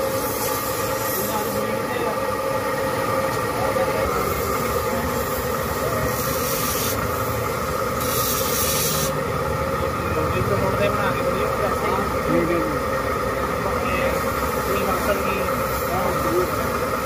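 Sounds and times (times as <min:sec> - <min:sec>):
hiss: 0:00.0 - 0:01.7, 0:05.1 - 0:07.4, 0:08.0 - 0:09.2, 0:14.1 - 0:16.8
grinding wheels humming and whining: 0:00.0 - 0:17.0.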